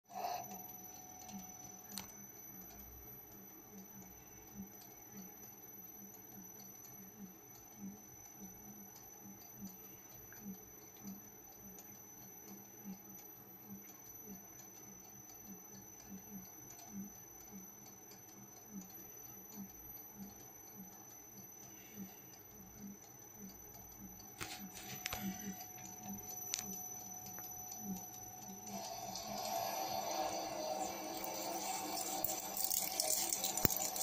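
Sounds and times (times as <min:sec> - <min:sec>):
lathe whine: 0:28.6 - 0:34.0.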